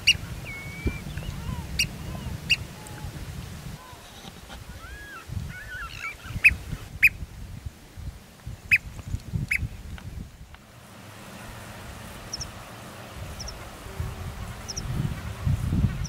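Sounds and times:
bird twittering: 0.0s - 2.6s, 4.8s - 7.2s
sharp bird calls: 0.0s - 2.7s, 4.8s - 7.2s
wind rumble on microphone: 0.0s - 10.6s, 11.2s - 16.0s
steady hiss: 0.0s - 16.0s.

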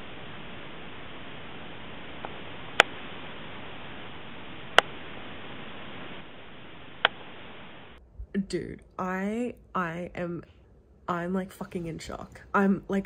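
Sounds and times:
microphone hiss: 0.0s - 13.0s
sharp clicks: 4.7s - 5.0s, 7.0s - 7.3s.

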